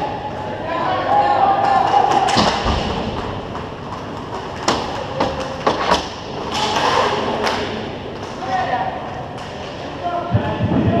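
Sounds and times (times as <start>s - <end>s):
skaters on ice: 1.1s - 10.2s
hockey sticks and puck clacking: 1.6s - 8.6s.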